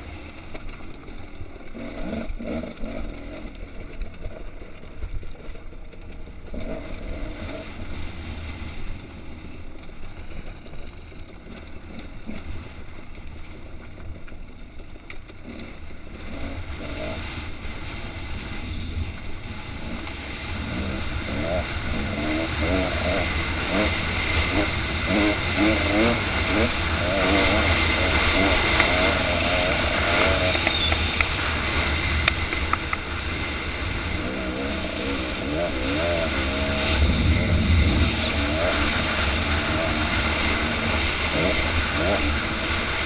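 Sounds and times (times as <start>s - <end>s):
dirt bike engine: 0.0s - 43.0s
wind rumble on microphone: 16.8s - 43.0s.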